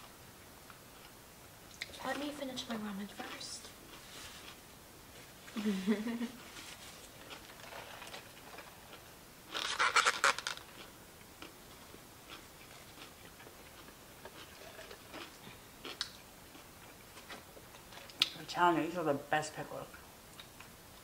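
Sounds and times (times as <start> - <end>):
faint chewing: 3.2 - 4.6, 6.5 - 18.4
crackling packaging rustle: 6.4 - 10.9.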